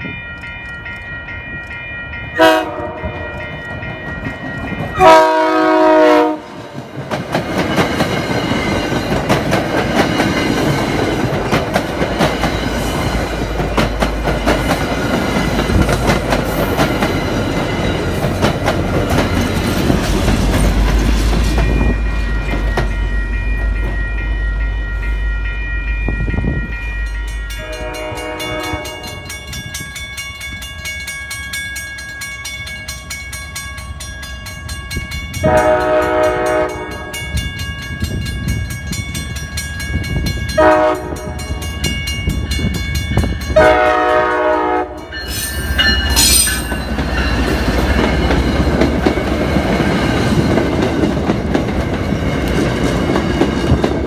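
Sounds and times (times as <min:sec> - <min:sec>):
crossing signal bell clanging: 0:00.0 - 0:54.0
train rumbling on rails: 0:00.0 - 0:54.0
train horn blasts: 0:02.4 - 0:03.4, 0:05.0 - 0:06.7, 0:27.5 - 0:29.4, 0:35.4 - 0:37.3, 0:40.6 - 0:41.6, 0:43.5 - 0:45.2.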